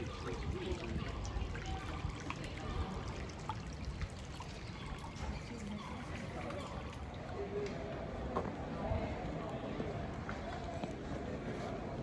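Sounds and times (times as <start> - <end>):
water trickling: 0.0 - 7.5.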